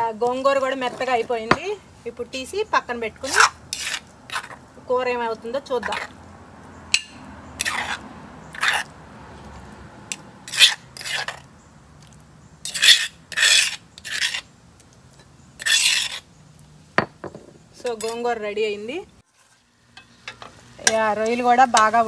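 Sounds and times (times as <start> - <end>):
spoon scraping stone mortar: 0.2 - 1.8, 3.2 - 4.6, 7.0 - 8.9, 10.1 - 14.5, 15.1 - 16.3.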